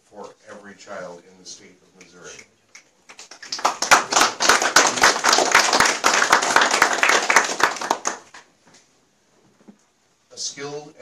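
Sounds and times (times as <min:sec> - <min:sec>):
small group applauding: 0:02.3 - 0:08.5.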